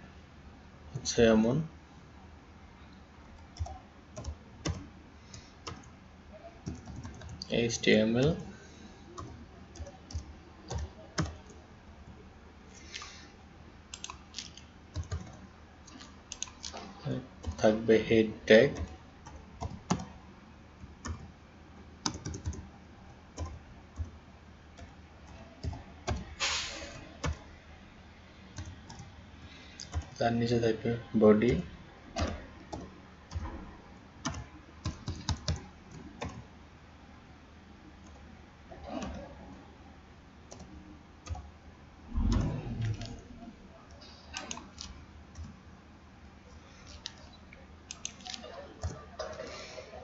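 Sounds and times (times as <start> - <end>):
typing on computer keyboard: 3.3 - 5.9, 6.6 - 7.5, 9.2 - 11.6, 13.9 - 16.7, 17.4 - 17.6, 18.7 - 20.1, 20.8 - 21.3, 22.0 - 22.7, 24.8 - 26.3, 27.2 - 27.4, 29.8 - 30.2, 34.2 - 36.4, 40.5 - 41.5, 44.4 - 45.6, 47.9 - 49.4
keyboard keystrokes: 3.4 - 4.8, 14.0 - 16.7, 22.0 - 22.6, 34.2 - 36.4, 42.1 - 43.2, 44.4 - 45.6
brief hiss: 26.4 - 27.0.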